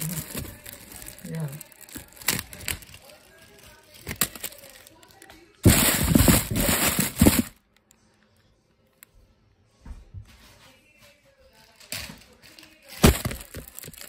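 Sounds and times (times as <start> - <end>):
plastic wrappers crinkling: 0.0 - 7.6, 11.5 - 14.0.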